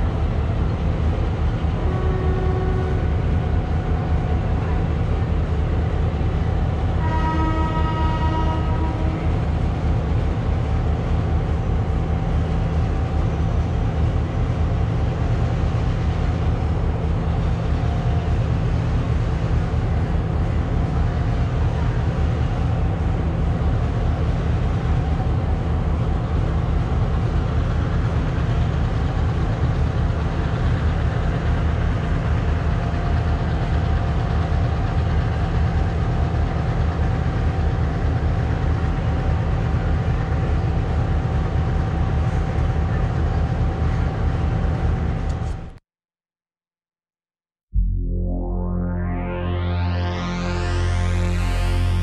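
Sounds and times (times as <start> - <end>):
diesel locomotive engine idling: 0.0 - 45.8
thin steady whine: 47.8 - 52.0.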